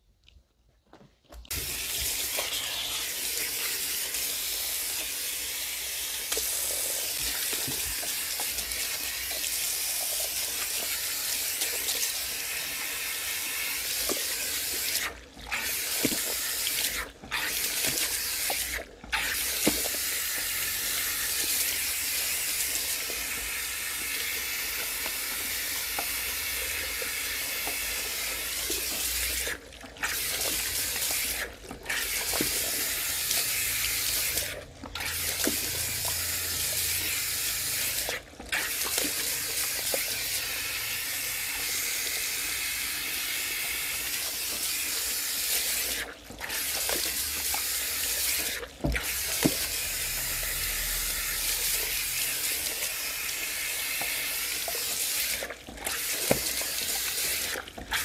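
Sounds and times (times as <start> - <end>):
shower spray hissing: 1.5 - 10.2
small water splashes: 27.6 - 40.4, 43.6 - 58.0.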